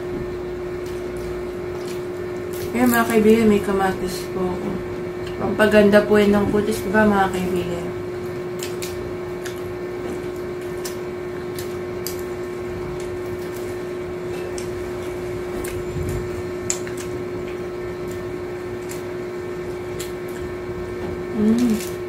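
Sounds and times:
steady machine hum: 0:00.0 - 0:22.0
crunching of crisp tacos: 0:08.2 - 0:22.0.

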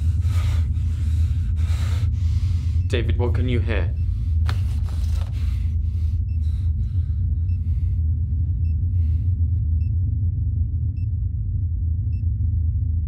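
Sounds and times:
soft breathy rushes: 0:00.0 - 0:02.9, 0:04.0 - 0:09.7
low rumbling drone: 0:00.0 - 0:13.0.

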